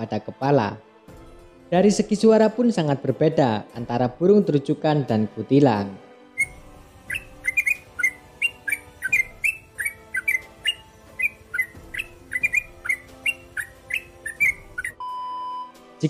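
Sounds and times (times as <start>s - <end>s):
bird chirping song: 6.4s - 15.0s.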